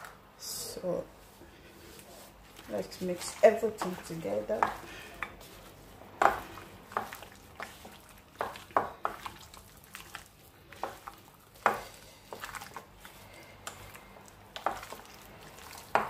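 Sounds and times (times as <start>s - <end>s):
meat knocking against glass bowl: 6.2s - 9.4s.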